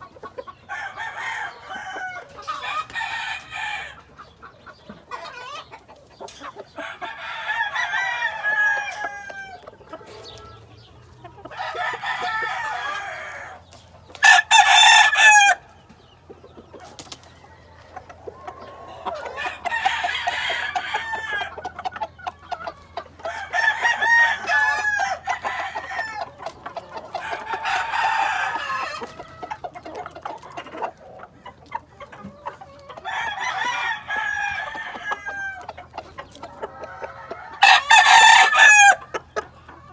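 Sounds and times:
roosters crowing: 0:00.0 - 0:04.3, 0:05.0 - 0:16.0, 0:16.6 - 0:39.9.

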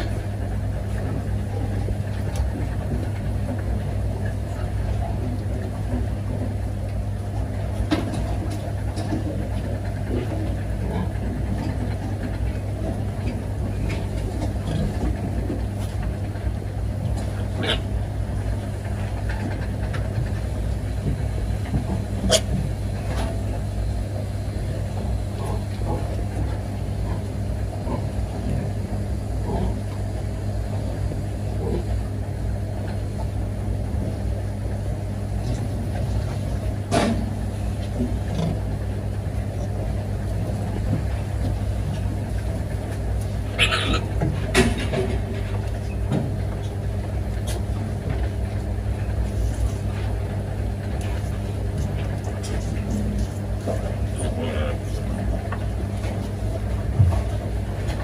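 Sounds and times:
low machine hum: 0:00.0 - 0:58.0
piglets grunting and squeaking: 0:17.5 - 0:18.0, 0:22.2 - 0:22.5, 0:43.6 - 0:44.2, 0:54.1 - 0:55.0.

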